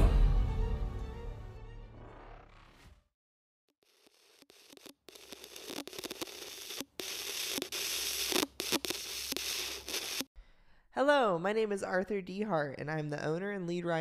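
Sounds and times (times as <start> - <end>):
crackling hissing static: 3.8 - 10.3.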